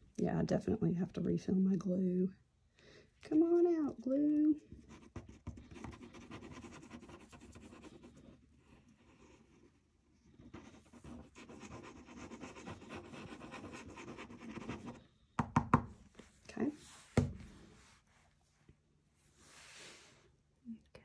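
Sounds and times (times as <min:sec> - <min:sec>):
glue scratching on paper: 0:04.7 - 0:15.0.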